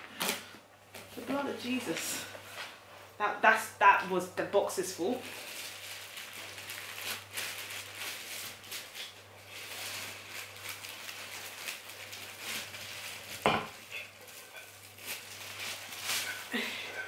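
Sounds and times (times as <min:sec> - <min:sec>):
rustling packaging: 0:05.0 - 0:17.0.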